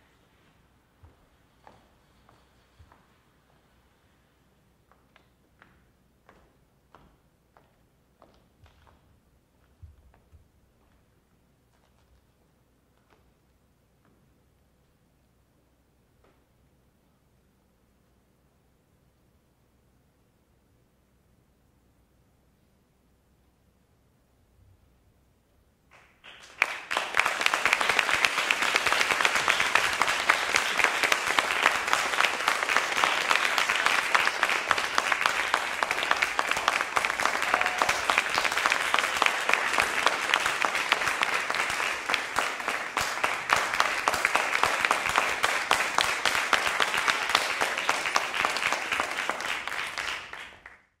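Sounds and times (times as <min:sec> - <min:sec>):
audience applauding: 0:25.9 - 0:50.9.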